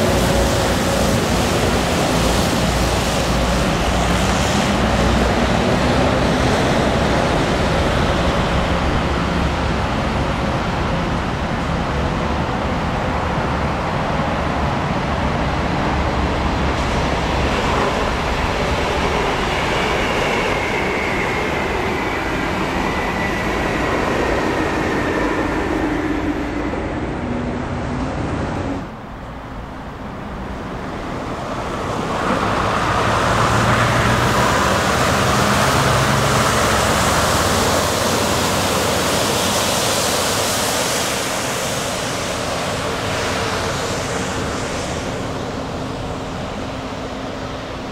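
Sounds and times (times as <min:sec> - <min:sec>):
traffic noise: 0:00.0 - 0:47.9
heavy trucks driving past: 0:31.0 - 0:39.6.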